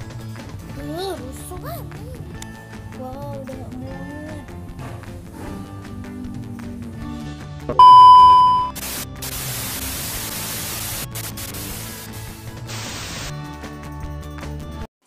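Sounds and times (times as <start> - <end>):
background music: 0.0 - 14.9
high test-tone beep: 7.8 - 8.8
tv static hiss: 8.4 - 12.1, 12.7 - 13.3.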